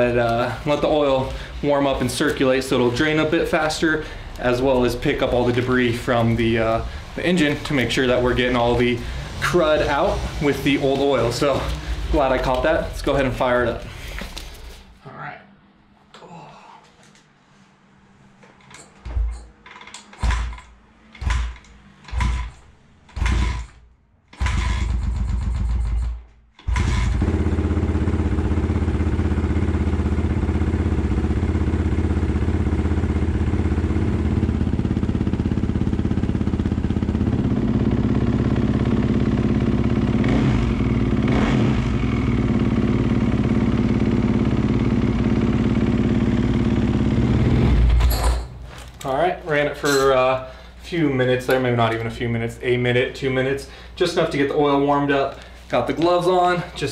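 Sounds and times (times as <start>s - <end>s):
dirt bike engine starting: 0.0s - 14.7s, 20.0s - 48.5s.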